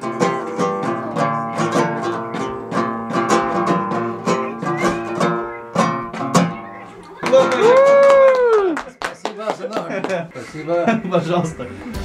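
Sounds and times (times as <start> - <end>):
strummed lute: 0.0 - 7.8.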